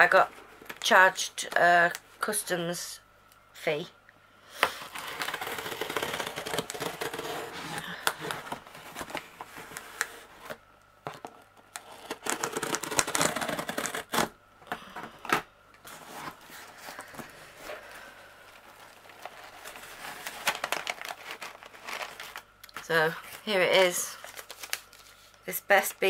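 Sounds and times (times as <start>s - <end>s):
packing paper rustling: 4.7s - 10.6s, 11.2s - 14.3s, 15.8s - 25.5s
cardboard box being opened: 4.9s - 10.6s.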